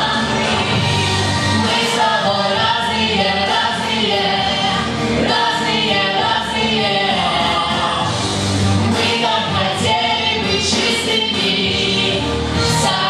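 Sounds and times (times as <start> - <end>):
musical accompaniment: 0.0 - 13.0.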